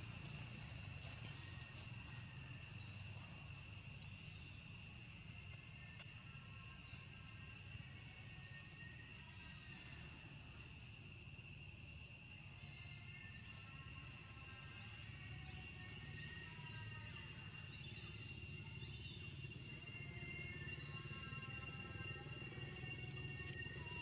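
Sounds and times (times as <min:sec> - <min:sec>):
insects droning: 0:00.0 - 0:24.0
faint music: 0:12.3 - 0:24.0.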